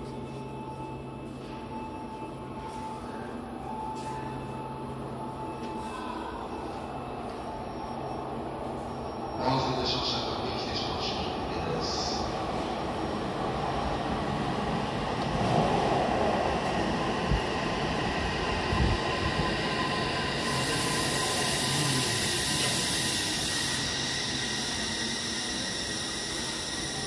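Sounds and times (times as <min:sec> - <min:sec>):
hiss: 0:20.4 - 0:27.0.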